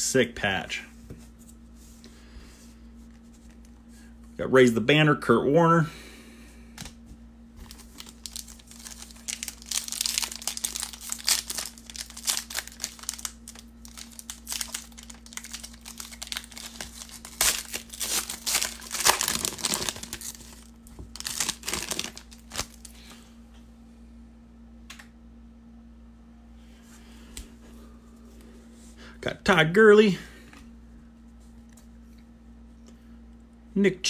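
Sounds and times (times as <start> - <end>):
foil wrapper tearing and crinkling: 7.6 - 22.9.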